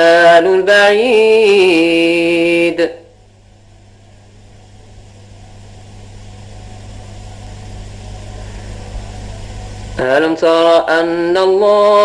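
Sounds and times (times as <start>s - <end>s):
electrical hum: 0.0s - 12.0s
recording hiss: 0.0s - 12.0s.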